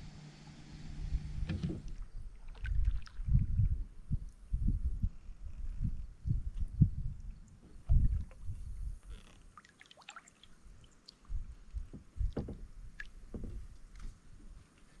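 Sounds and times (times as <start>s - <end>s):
water dripping and splashing: 2.4s - 3.5s, 9.5s - 11.4s.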